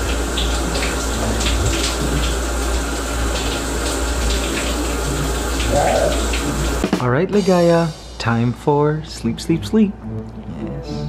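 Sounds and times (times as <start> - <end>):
shower water splashing: 0.0 - 8.2.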